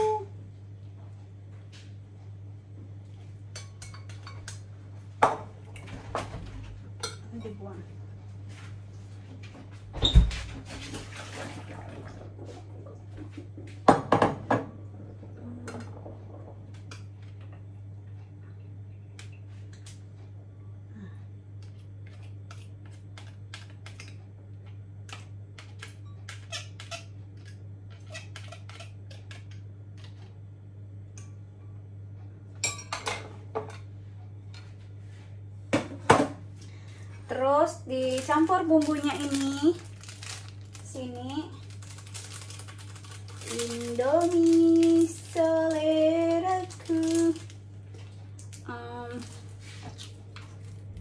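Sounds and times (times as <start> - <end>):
steady low hum: 0.0 - 51.0.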